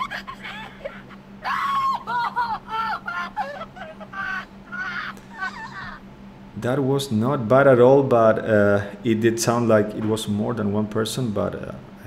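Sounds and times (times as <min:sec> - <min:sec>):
man laughing: 0:00.0 - 0:06.0
man wailing and sobbing: 0:00.0 - 0:06.0.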